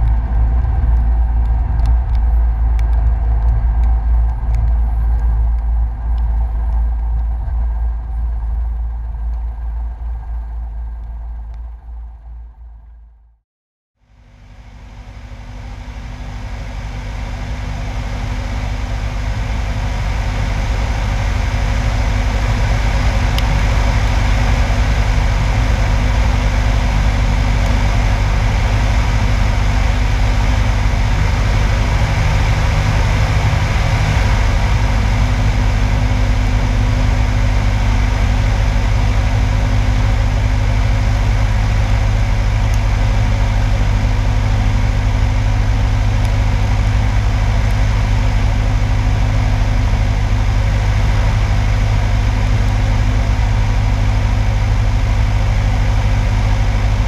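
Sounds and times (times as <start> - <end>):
light airplane engine drone: 0.0 - 13.2, 14.0 - 57.0.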